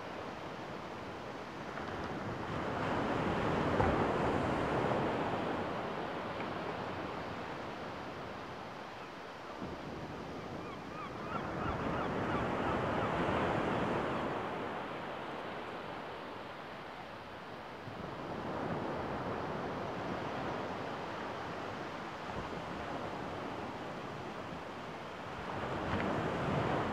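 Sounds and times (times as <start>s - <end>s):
faint bird calls: 10.6s - 13.2s.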